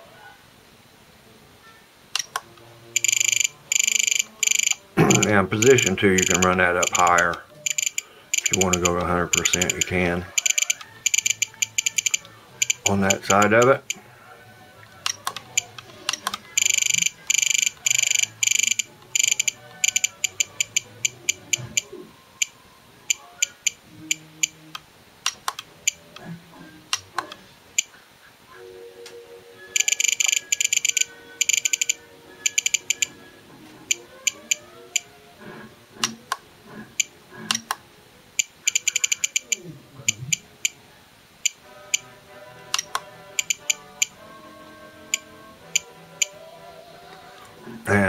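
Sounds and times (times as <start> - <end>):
radio transmitter short high beeps: 3.0 - 12.9, 16.6 - 20.4.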